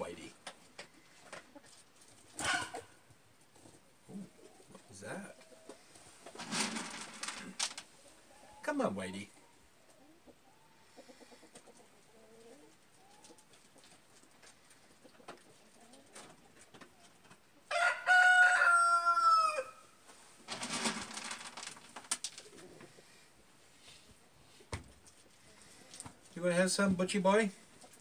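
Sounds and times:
rooster crowing: 0:02.4 - 0:02.8, 0:17.7 - 0:19.8
faint hen clucking: 0:08.0 - 0:19.7.

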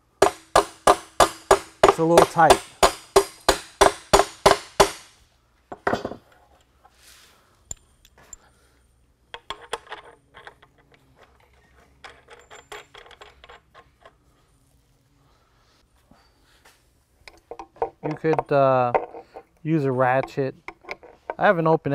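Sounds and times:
hammer striking bolt into wood: 0:00.2 - 0:05.1.

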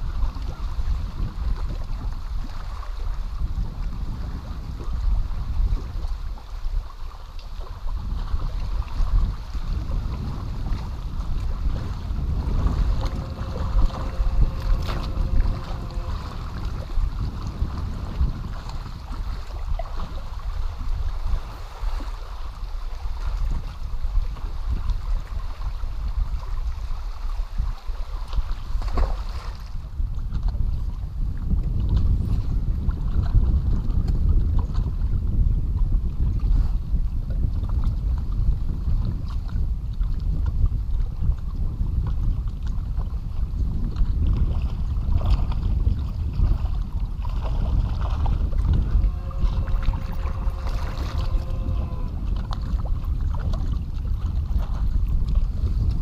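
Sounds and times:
water lapping against boat hull: 0:00.0 - 0:56.0
wind rumbling on microphone: 0:00.0 - 0:56.0
faint steady whine: 0:12.0 - 0:17.2, 0:48.8 - 0:52.3.

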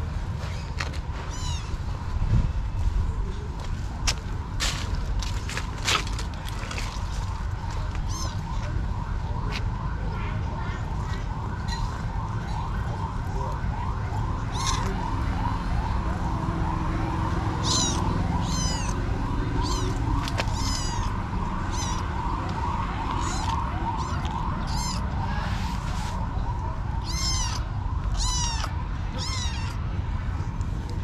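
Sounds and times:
kitten meowing: 0:01.3 - 0:01.8, 0:08.0 - 0:08.5, 0:14.5 - 0:15.0, 0:17.6 - 0:22.2, 0:23.0 - 0:26.1, 0:27.0 - 0:29.8.

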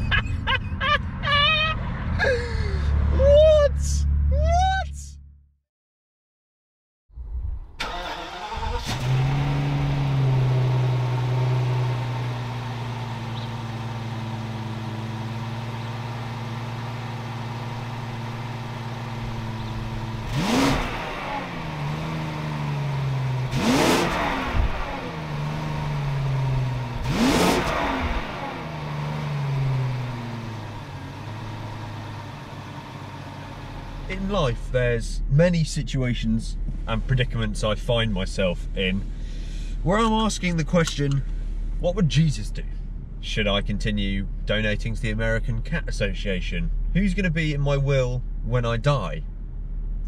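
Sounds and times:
car engine starting and idling: 0:07.6 - 0:50.0
car engine revving: 0:07.8 - 0:35.0.

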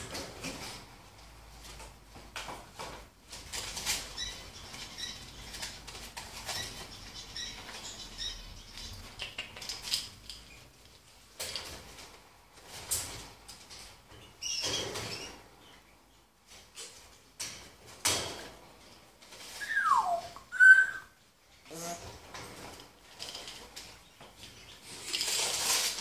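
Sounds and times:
parrot rustling and scratching: 0:00.0 - 0:15.8, 0:16.4 - 0:26.0
parrot soft high squeaks: 0:19.6 - 0:21.2.

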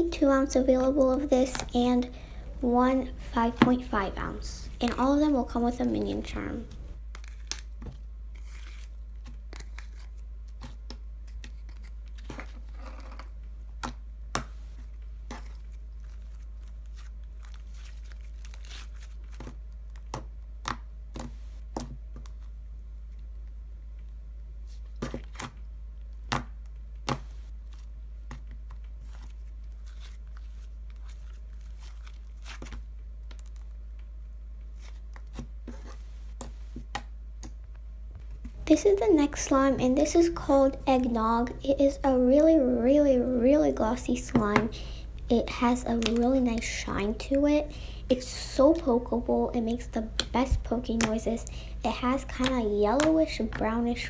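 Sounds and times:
steady low hum: 0:00.0 - 0:12.7, 0:25.6 - 0:54.0.

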